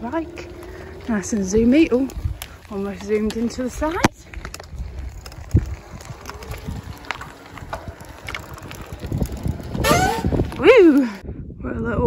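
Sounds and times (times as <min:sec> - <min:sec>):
bicycle tyres rolling: 0:00.0 - 0:11.2
wind on microphone: 0:00.0 - 0:12.0
bike knocks and rattles: 0:02.9 - 0:11.1.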